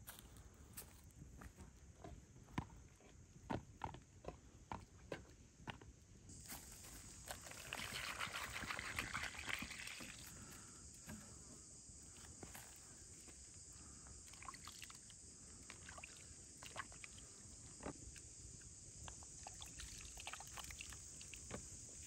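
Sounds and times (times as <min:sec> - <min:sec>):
water splashing onto tomatoes: 0:07.5 - 0:10.3.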